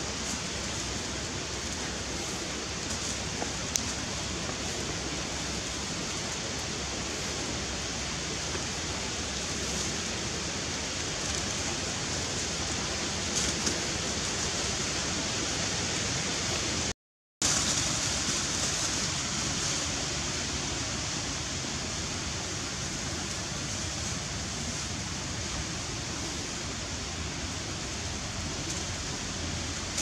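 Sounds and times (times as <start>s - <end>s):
outdoor background hiss: 0.0s - 30.0s
faint ticks: 3.6s - 4.0s.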